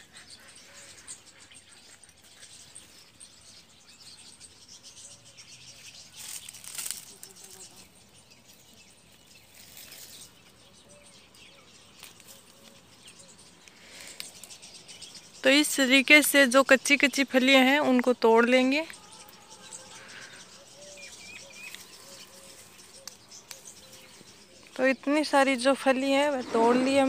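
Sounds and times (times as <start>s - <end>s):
dry leaves rustling and crackling: 5.7s - 10.5s, 21.2s - 24.8s.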